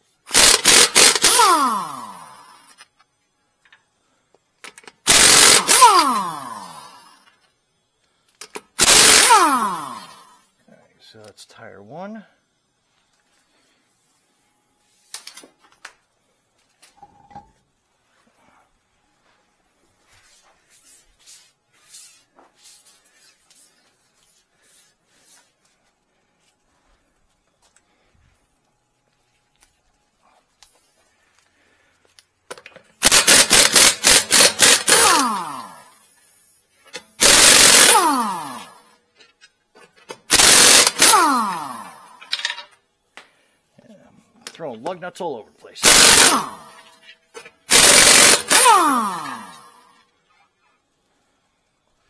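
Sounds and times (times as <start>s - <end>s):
impact wrench hammering: 0.3s - 1.5s, 4.8s - 6.3s, 8.5s - 10.1s, 32.5s - 35.5s, 36.9s - 38.7s, 40.1s - 42.4s, 45.8s - 49.6s
impact wrench motor whine: 0.3s - 2.9s, 4.8s - 7.4s, 8.6s - 10.4s, 33.0s - 36.0s, 37.0s - 39.0s, 40.2s - 42.4s, 45.8s - 50.0s.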